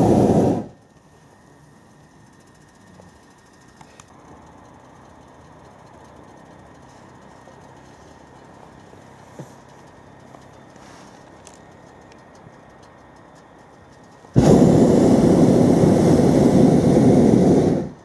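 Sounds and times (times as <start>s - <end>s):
light clicks: 3.1s - 14.3s.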